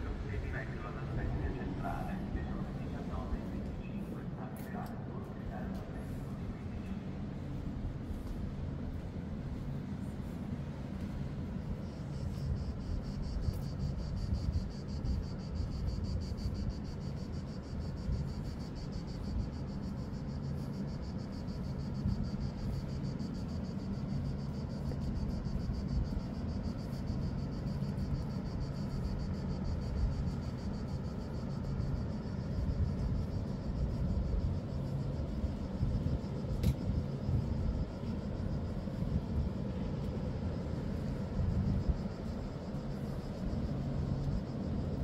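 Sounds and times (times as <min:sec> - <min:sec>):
low steady rumble: 0:00.0 - 0:45.0
cicada chirring: 0:11.8 - 0:45.0.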